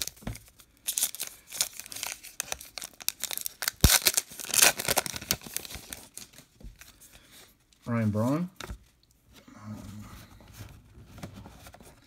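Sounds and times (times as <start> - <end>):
wrapper crinkling: 0.0 - 6.5
wrapper ripping open: 0.8 - 6.4.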